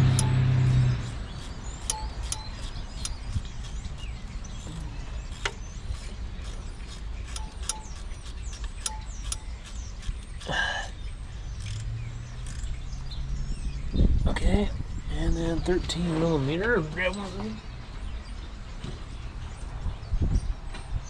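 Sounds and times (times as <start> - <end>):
faint birds chirping: 0.0 - 21.0
socket wrench clinking on metal: 1.0 - 3.8, 7.2 - 10.4.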